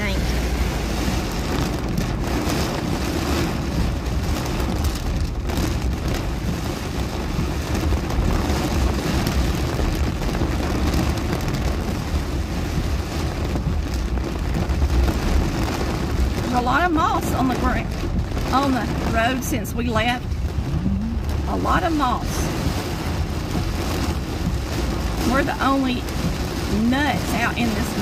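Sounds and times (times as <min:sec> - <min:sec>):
heavy rain on car windshield: 0:00.0 - 0:28.0
low rumble of moving car: 0:00.0 - 0:28.0.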